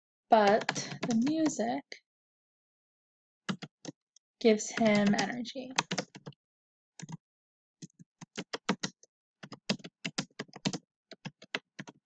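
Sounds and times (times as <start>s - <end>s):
keyboard typing: 0.4s - 1.5s, 3.5s - 3.8s, 4.8s - 6.4s, 7.0s - 7.2s, 7.8s - 12.0s.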